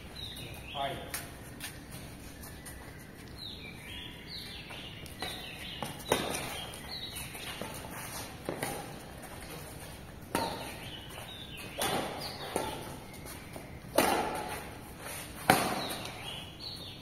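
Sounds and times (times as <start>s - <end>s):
racket hitting shuttlecock: 5.2s - 6.8s, 7.4s - 9.4s, 10.2s - 13.2s, 13.9s - 14.8s, 15.4s - 16.3s.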